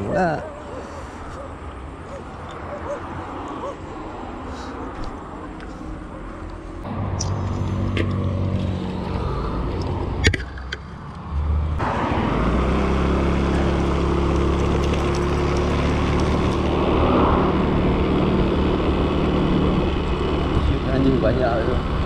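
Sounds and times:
scooter engine running: 0:12.8 - 0:16.9, 0:17.5 - 0:22.0.

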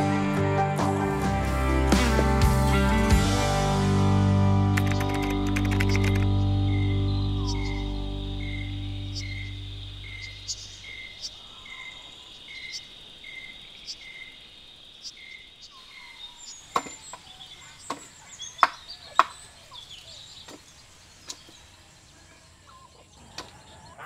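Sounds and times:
faint bird chirps: 0:04.8 - 0:24.0
crickets chirping: 0:04.9 - 0:24.0
sharp knocks on wooden cage: 0:16.8 - 0:17.0.

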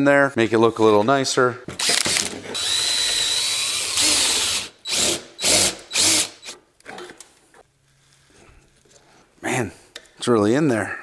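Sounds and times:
power tool whining: 0:01.8 - 0:06.6.

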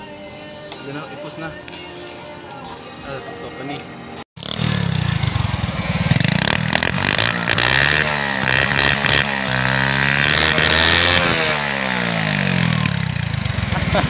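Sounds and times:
motorcycle engine revving: 0:04.4 - 0:14.0.

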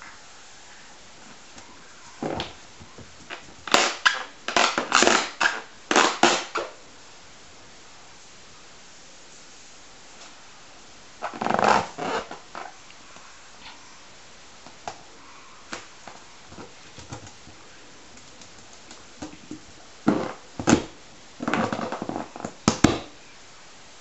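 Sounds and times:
rubber balloons rubbing and knocking: 0:01.6 - 0:06.8, 0:11.2 - 0:12.8, 0:15.7 - 0:23.1.

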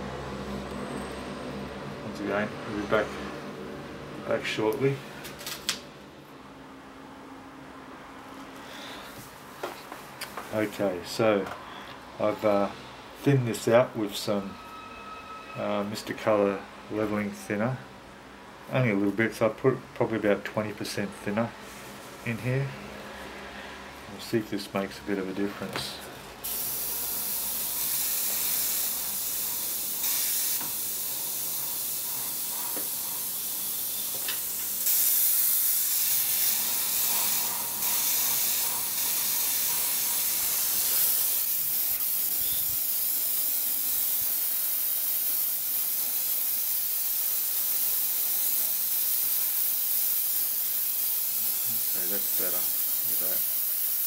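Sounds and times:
airbrush spraying paint: 0:26.4 - 0:54.0.

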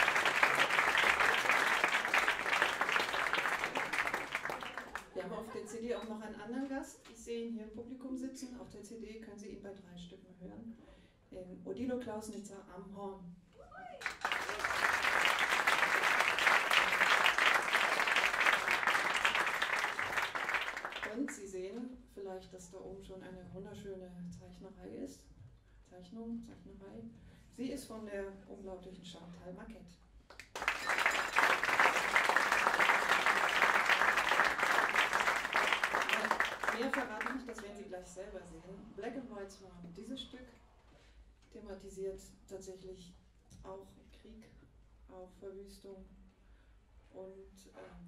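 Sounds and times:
audience applause: 0:00.0 - 0:05.2, 0:14.0 - 0:21.2, 0:30.4 - 0:37.6.

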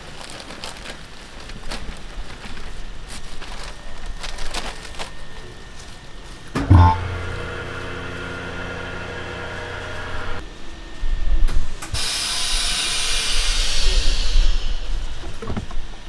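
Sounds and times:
vacuum pump humming: 0:02.0 - 0:10.4
air hissing into chamber: 0:11.8 - 0:15.2.

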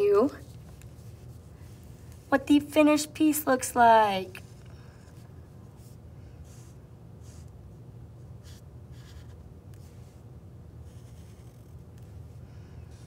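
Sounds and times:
marker scratching on paper: 0:04.5 - 0:07.5, 0:08.4 - 0:10.2, 0:10.8 - 0:13.0.

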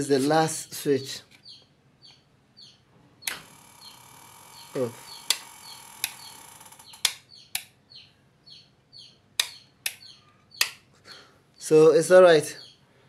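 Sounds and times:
bird chirping faintly: 0:00.3 - 0:12.9
light switches clicking: 0:03.2 - 0:03.5, 0:05.3 - 0:06.2, 0:07.0 - 0:07.7, 0:09.4 - 0:10.0, 0:10.6 - 0:10.8.

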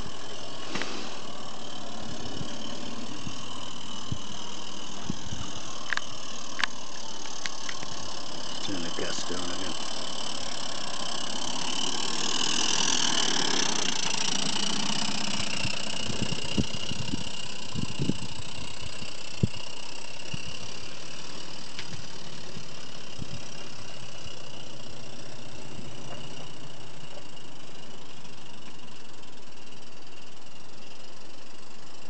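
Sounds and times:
steam locomotive hissing: 0:00.0 - 0:05.8.

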